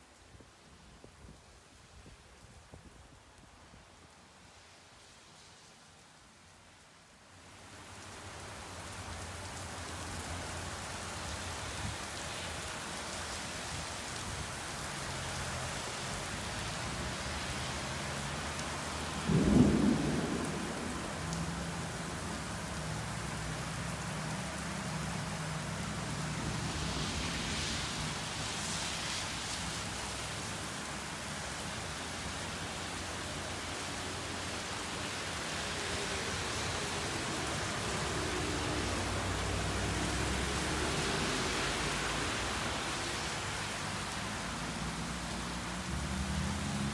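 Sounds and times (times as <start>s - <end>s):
heavy rain pouring on pavement: 0.0s - 46.9s
low rolling thunder rumble: 19.2s - 22.4s
thunder clap: 19.3s - 21.6s.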